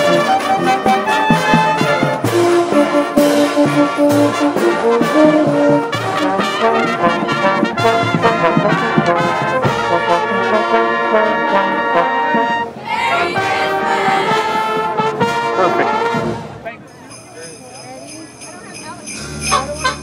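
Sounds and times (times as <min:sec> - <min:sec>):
brass band playing: 0:00.0 - 0:17.5, 0:19.0 - 0:20.0.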